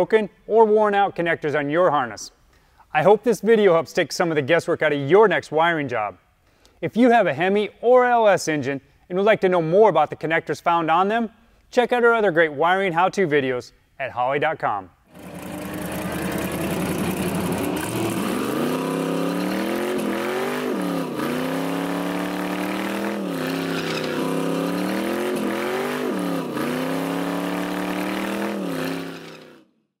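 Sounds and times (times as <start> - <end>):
race car engine revving: 15.1 - 29.6.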